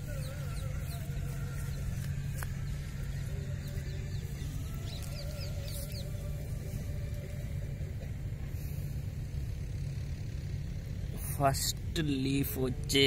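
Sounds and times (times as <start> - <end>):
small birds chirping: 0.0 - 7.8
steady low hum: 0.0 - 13.0.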